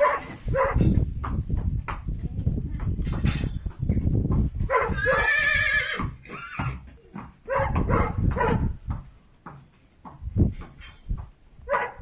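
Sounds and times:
pony whinnying: 4.8 - 6.9.

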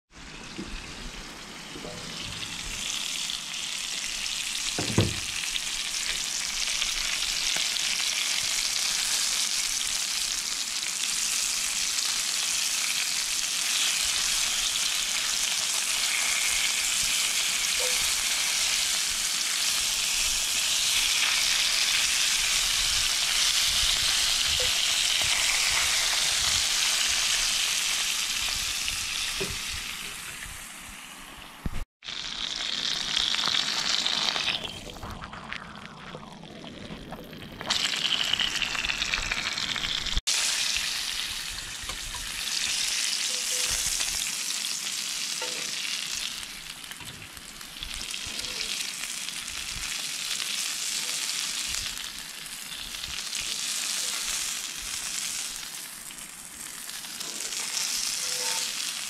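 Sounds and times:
fish fillets sizzling in a pan: 2.6 - 34.8, 37.6 - 59.0.

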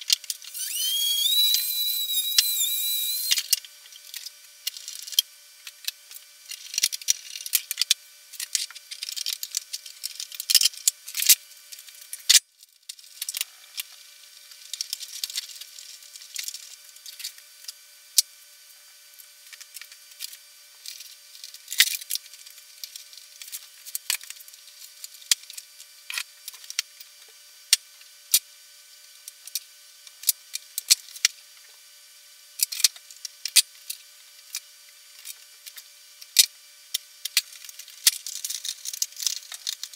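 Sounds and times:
faint steady hum: 0.0 - 39.9
small parts and tools handled: 0.4 - 5.2, 37.2 - 39.9.

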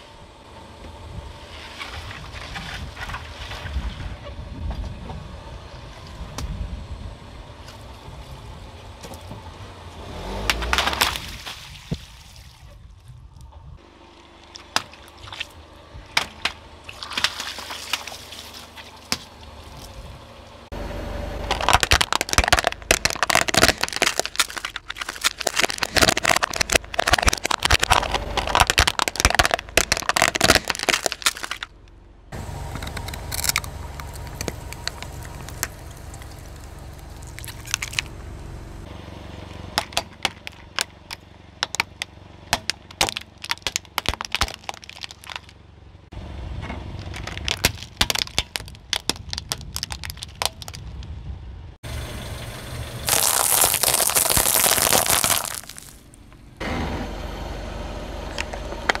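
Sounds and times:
plastic toys cracking under tyre: 10.4 - 11.6, 21.4 - 31.9, 32.7 - 38.1, 39.8 - 45.6, 47.0 - 51.2, 53.0 - 56.2
tyre rumbling on slime: 21.4 - 31.7, 47.0 - 51.0, 53.0 - 56.1.

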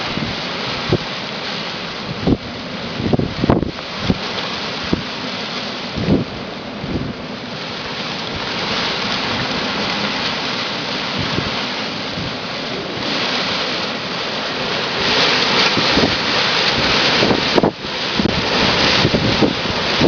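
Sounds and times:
palm fronds thrashing in wind: 0.0 - 20.0
wind buffeting microphone: 0.0 - 20.0.

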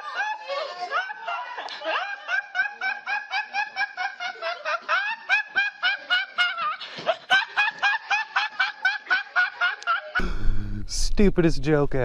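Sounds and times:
man laughing uncontrollably: 0.0 - 10.4
breathy gasp: 10.2 - 10.8.

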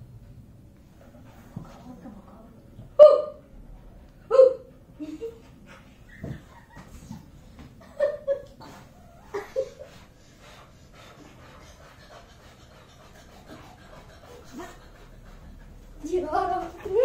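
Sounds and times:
dog panting: 0.7 - 2.7, 4.8 - 7.7, 8.6 - 17.0.

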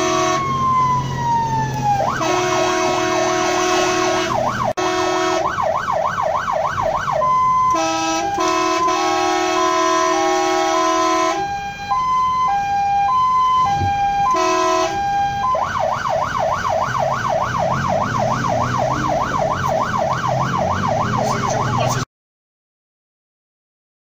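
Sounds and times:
horn blast: 0.0 - 0.5, 2.1 - 5.5, 7.7 - 11.5, 14.2 - 15.1
siren yelp: 0.0 - 22.1
truck engine: 0.0 - 22.1
two-tone siren: 0.0 - 22.1.

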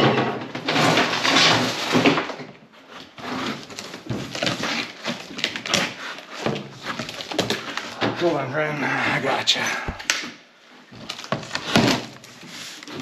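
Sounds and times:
cardboard rubbing: 12.2 - 13.0.

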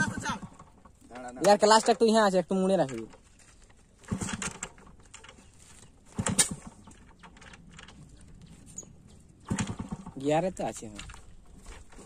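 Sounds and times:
motorcycle kick-start clattering: 4.0 - 5.5, 6.1 - 8.2.

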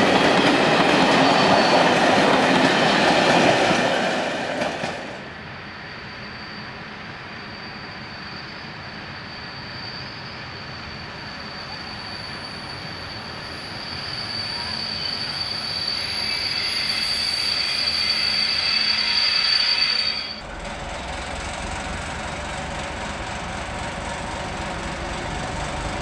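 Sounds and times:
train brakes squealing: 0.0 - 3.6, 4.8 - 26.0
diesel locomotive engine rumble: 9.9 - 26.0.

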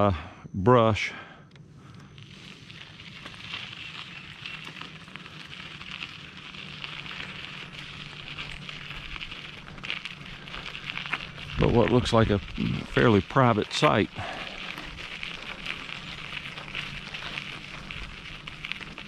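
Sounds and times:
bicycle tyres crackling on road: 1.6 - 19.0
low rumble: 6.0 - 18.8.

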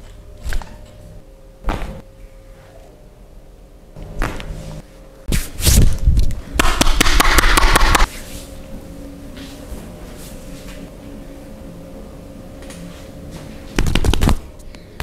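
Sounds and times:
hands slapping a body: 13.8 - 14.4.

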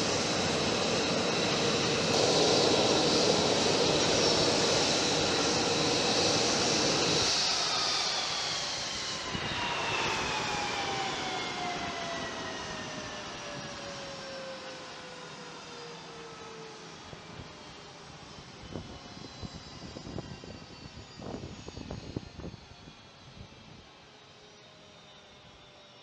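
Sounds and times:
jet engine rumble: 0.0 - 15.4
turbine whine falling in pitch: 0.0 - 26.0.

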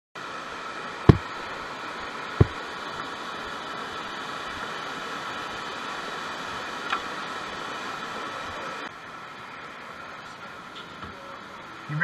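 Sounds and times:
whitewater rushing: 0.2 - 10.7
dull thumps: 1.1 - 1.3, 2.4 - 2.6.

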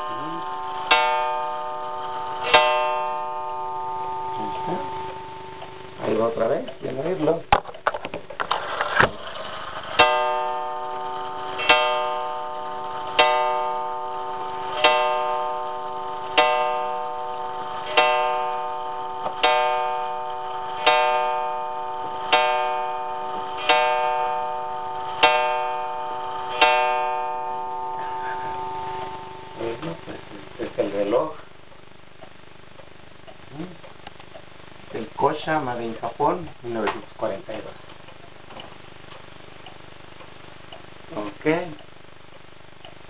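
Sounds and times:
wall clock striking gong: 0.0 - 7.2, 10.0 - 30.2.

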